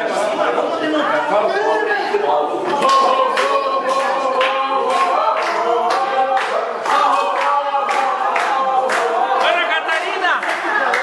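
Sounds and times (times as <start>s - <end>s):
group singing unaccompanied: 0.0s - 11.0s
people clapping in time: 2.7s - 11.0s.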